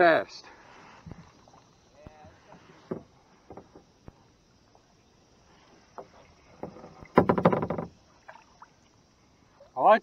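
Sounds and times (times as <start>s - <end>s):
faint knocks and clicks: 2.5s - 4.2s, 6.0s - 8.0s.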